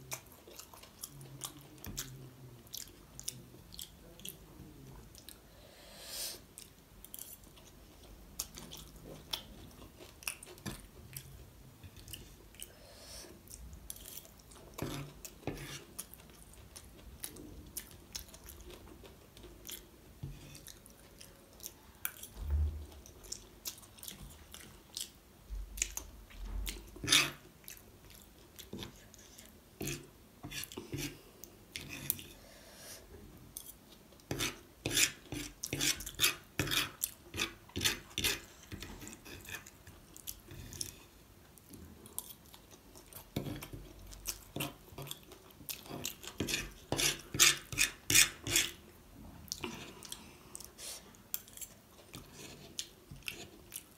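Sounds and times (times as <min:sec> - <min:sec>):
chewing and biting food: 0:00.0 - 0:04.4.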